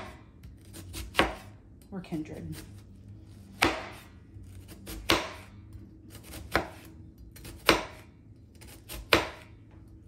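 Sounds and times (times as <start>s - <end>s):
knife cutting onion: 0.0s - 1.6s, 3.5s - 9.6s.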